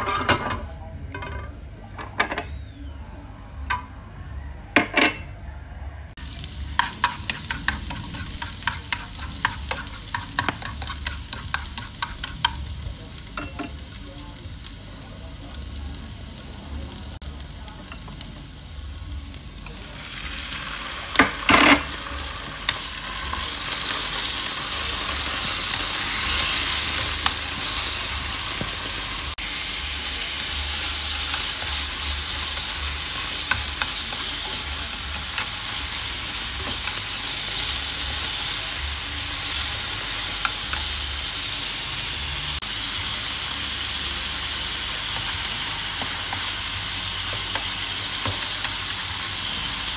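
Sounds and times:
meat frying: 0:06.2 - 0:49.9
shallots and garlic sizzling in oil: 0:06.2 - 0:49.9
chopsticks stirring and clicking: 0:06.8 - 0:12.7, 0:32.4 - 0:37.1.

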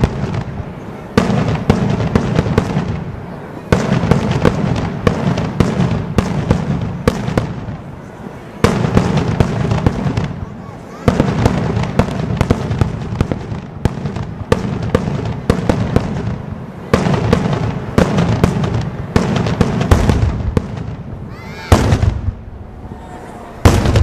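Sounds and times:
fireworks bangs and crackles: 0:00.0 - 0:24.0
rumbling echo: 0:19.8 - 0:24.0.

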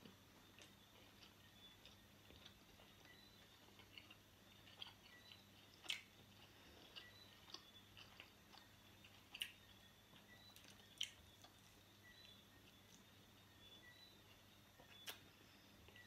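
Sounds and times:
faint chewing: 0:00.0 - 0:16.0.

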